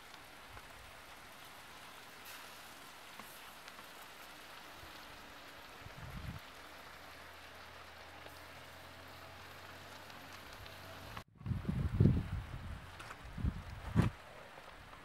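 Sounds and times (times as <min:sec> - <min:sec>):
oil sizzling around frying eggplant: 0:00.0 - 0:11.3.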